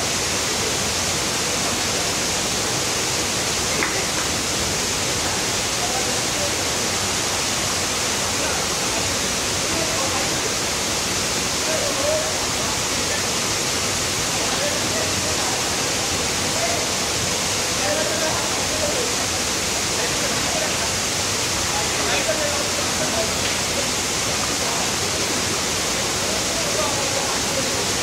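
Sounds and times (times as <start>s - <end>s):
water rushing: 0.0s - 28.0s
faint voices: 8.0s - 28.0s.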